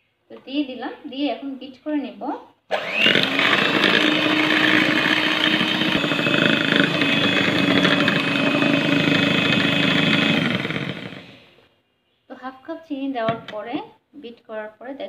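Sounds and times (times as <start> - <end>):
electric hand mixer running: 2.7 - 11.6.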